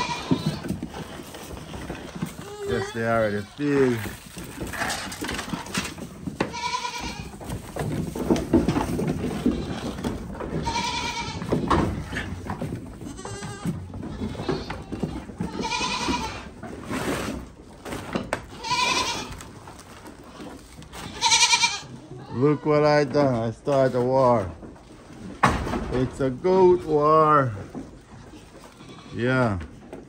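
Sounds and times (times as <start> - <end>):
goats bleating: 0.0 - 7.7, 8.6 - 16.6, 18.5 - 23.1, 28.2 - 29.7
herd scuffling and clattering: 0.0 - 30.0.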